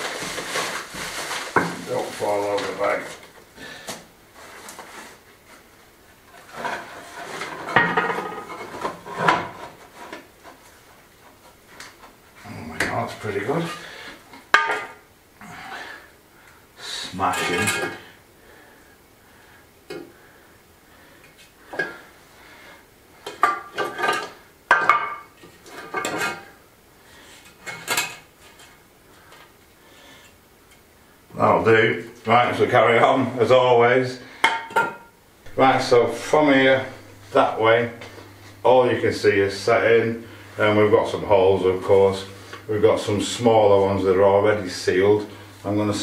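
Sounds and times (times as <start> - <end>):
stone flags scraping and clunking: 6.3 - 11.6.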